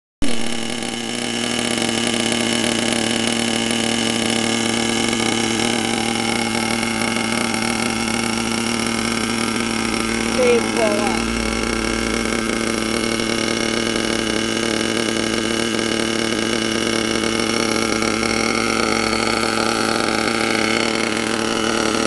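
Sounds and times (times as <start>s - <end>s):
small engine idling: 0.2s - 22.0s.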